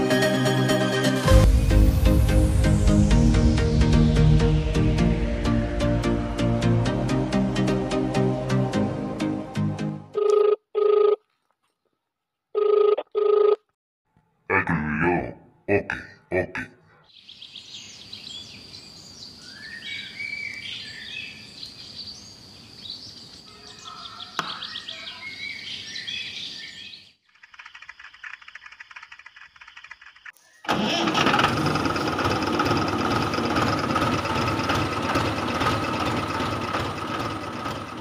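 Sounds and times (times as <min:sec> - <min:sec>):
birds chirping: 0:16.1 - 0:30.7
faint fast ticking: 0:27.3 - 0:30.4.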